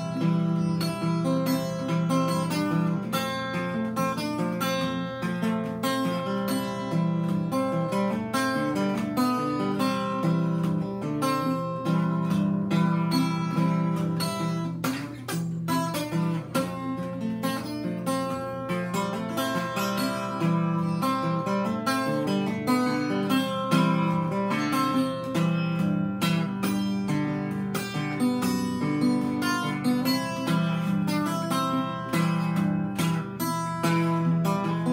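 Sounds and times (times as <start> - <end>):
fingerpicked acoustic guitar: 0.0 - 34.9.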